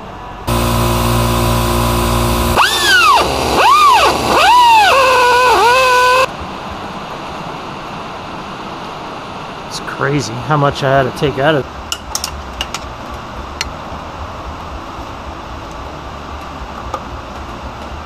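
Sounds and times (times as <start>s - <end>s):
power drill motor running: 0.5s - 6.3s.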